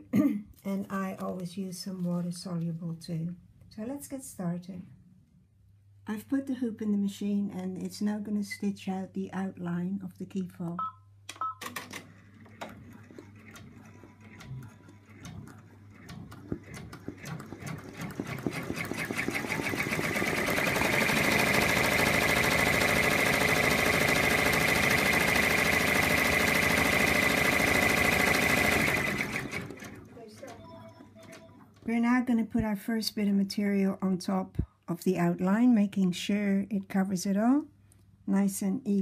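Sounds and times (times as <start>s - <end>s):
embroidery machine stitching: 11.8s - 31.6s.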